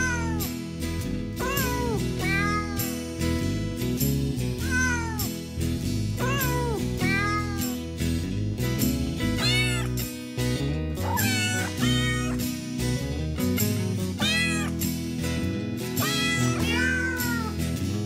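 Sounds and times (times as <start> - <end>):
cat meowing: 0.0 - 0.5, 1.4 - 3.0, 4.6 - 5.3, 6.2 - 7.8, 9.4 - 10.0, 11.0 - 12.4, 14.2 - 14.8, 16.0 - 17.6
background music: 0.0 - 18.0.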